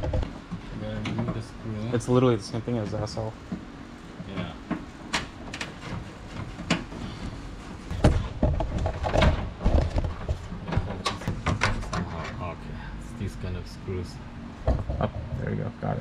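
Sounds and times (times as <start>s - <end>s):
heavy knocks and thuds: 7.9s - 12.1s, 14.6s - 15.3s.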